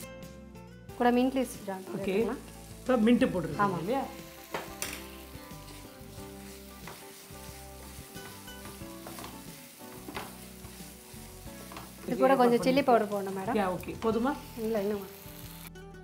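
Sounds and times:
soft frying sizzle: 0:01.0 - 0:15.7.

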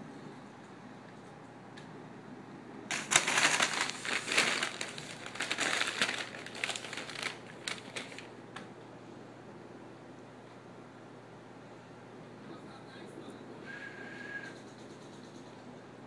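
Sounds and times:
plastic bag crinkling: 0:02.9 - 0:08.4.

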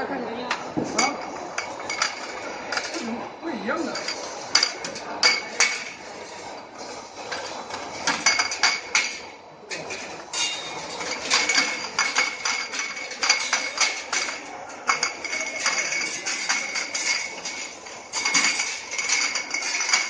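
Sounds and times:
glass jars clinking: 0:08.1 - 0:20.0.

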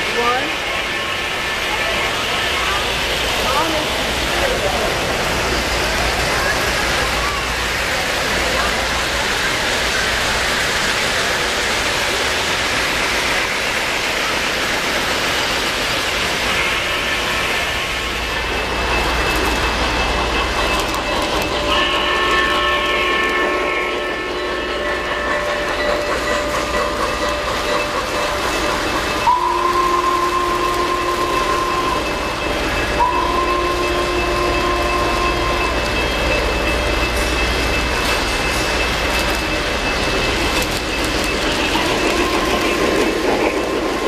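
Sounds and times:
model train rumble and clatter: 0:00.0 - 0:44.0
locomotive whistle blasts: 0:21.8 - 0:24.6, 0:29.2 - 0:32.2, 0:33.0 - 0:35.8.

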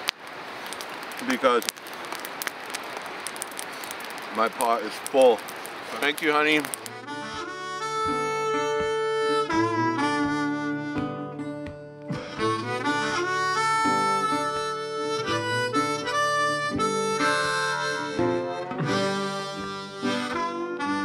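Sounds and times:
harmonica chords: 0:06.8 - 0:21.0.

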